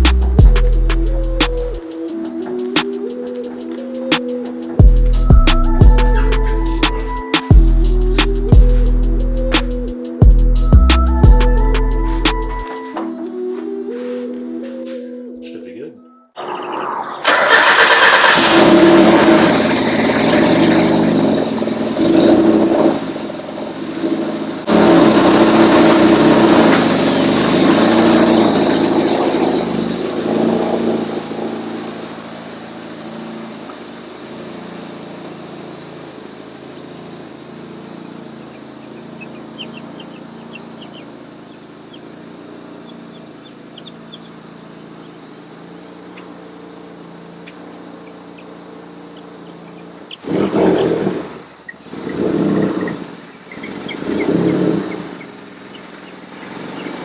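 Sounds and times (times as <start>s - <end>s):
loud engine running: 0.0s - 12.7s, 17.2s - 57.0s
loud motor bursts: 24.7s - 31.7s, 50.2s - 55.6s.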